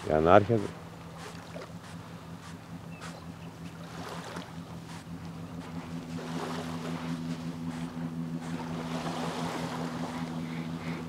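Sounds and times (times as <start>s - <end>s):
low motor drone: 0.0s - 11.0s
small waves: 0.0s - 11.0s
wind: 0.0s - 11.0s.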